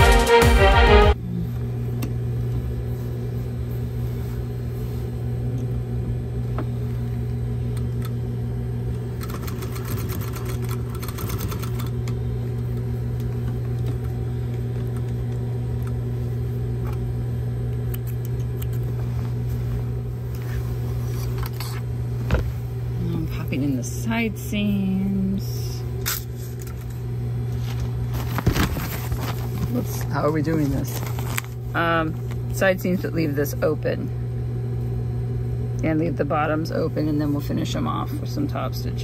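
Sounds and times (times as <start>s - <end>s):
electric sewing machine running: 9.0s - 15.1s.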